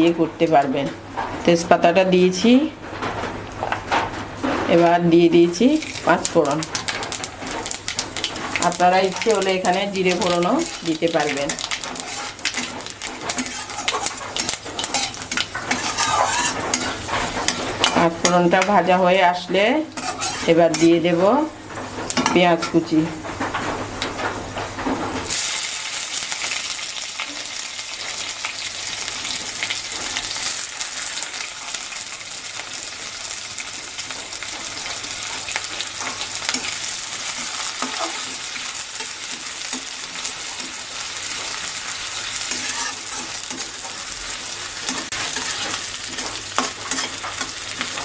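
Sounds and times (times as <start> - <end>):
onions sizzling in hot oil: 5.4 - 22.4, 25.2 - 48.0
spatula scraping a pan: 8.4 - 18.4, 19.9 - 21.0, 34.8 - 48.0.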